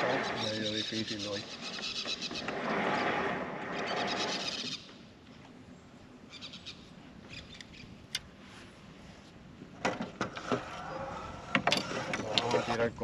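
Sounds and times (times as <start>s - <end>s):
birds chirping: 0.0s - 8.2s.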